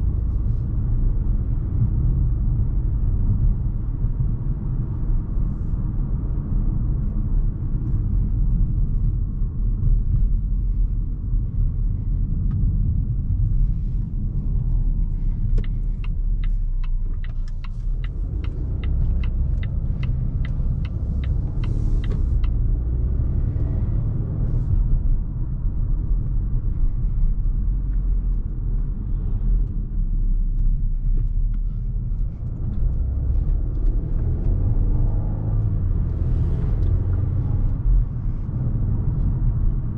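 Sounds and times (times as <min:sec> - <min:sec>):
car cabin engine rumble: 0:00.0 - 0:39.9
turn signal ticking: 0:13.4 - 0:25.2.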